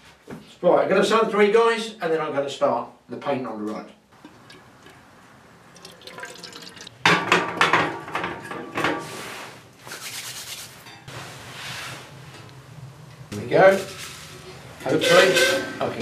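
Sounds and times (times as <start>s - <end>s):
water pouring into kettle: 5.7s - 7.0s.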